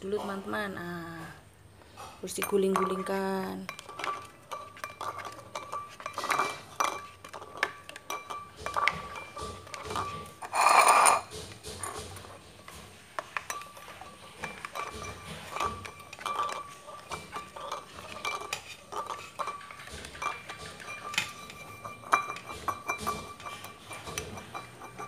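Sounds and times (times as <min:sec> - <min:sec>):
spoon scraping ceramic bowl: 0:02.1 - 0:25.0
ceramic bowl ringing: 0:02.4 - 0:11.3, 0:14.5 - 0:25.0
egg knocking in bowl: 0:02.4 - 0:25.0.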